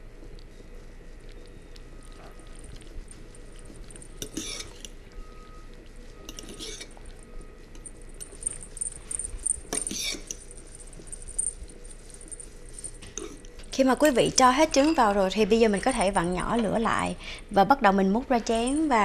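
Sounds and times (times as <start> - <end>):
fork scraping glass pan: 4.1 - 5.0, 6.2 - 7.1, 9.7 - 10.5.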